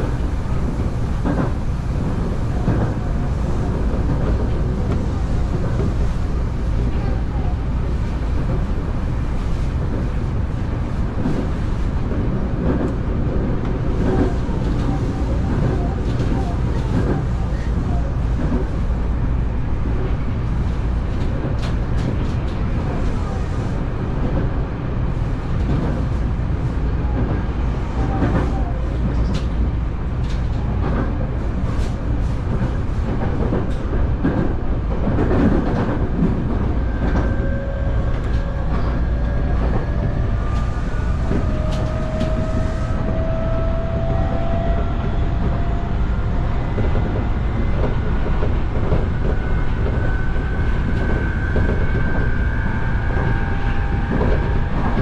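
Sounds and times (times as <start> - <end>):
train wheels rumbling on rail: 0.0 - 55.0.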